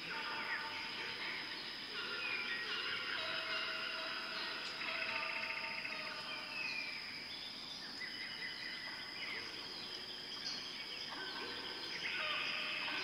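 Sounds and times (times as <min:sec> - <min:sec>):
birds chirping and calling: 0:00.0 - 0:13.0
steady background hiss: 0:00.0 - 0:13.0.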